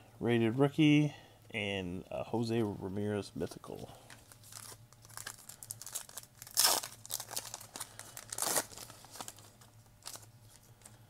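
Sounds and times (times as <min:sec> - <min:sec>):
foil pack crinkling: 0:04.1 - 0:11.0
foil ripping: 0:04.3 - 0:10.3.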